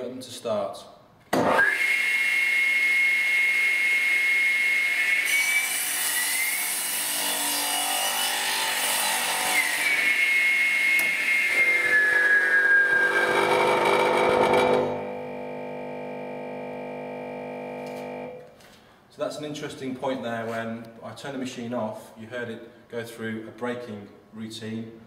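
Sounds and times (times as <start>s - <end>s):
saw motor whining: 9.2s - 18.4s
saw blade cutting wood: 10.9s - 15.1s.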